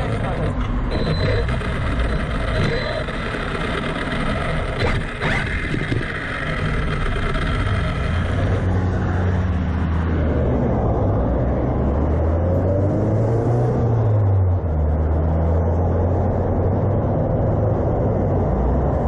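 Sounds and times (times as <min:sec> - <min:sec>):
short rising whine: 0:00.0 - 0:08.8
cars rumbling past: 0:00.0 - 0:19.0.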